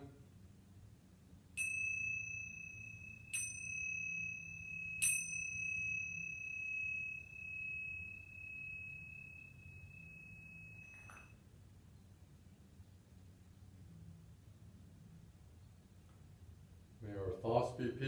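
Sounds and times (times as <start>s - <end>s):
hand cymbals ringing: 1.6s - 11.4s.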